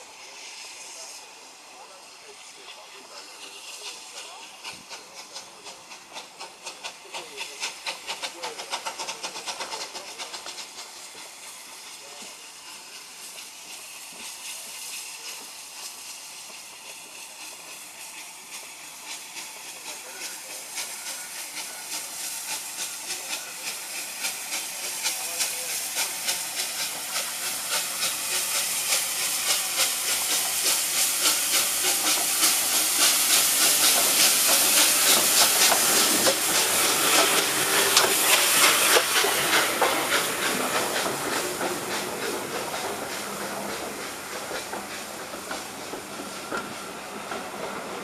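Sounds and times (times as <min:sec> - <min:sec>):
steam hissing: 0:00.0 - 0:48.0
steam locomotive exhaust beats: 0:00.0 - 0:48.0
train coaches rolling by: 0:00.0 - 0:48.0.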